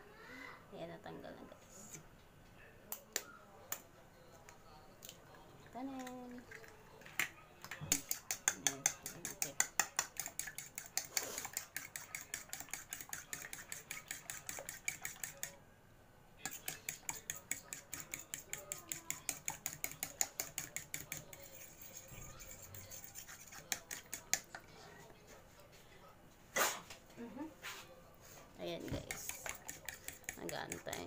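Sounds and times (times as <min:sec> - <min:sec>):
metal spoon beating eggs in bowl: 0:05.0 - 0:15.6, 0:16.4 - 0:24.8, 0:28.6 - 0:31.0.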